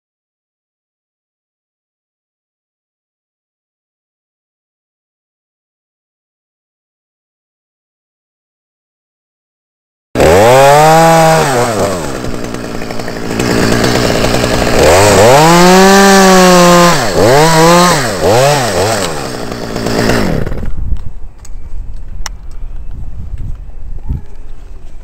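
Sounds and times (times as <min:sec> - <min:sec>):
chainsaw revving: 0:10.2 - 0:20.8.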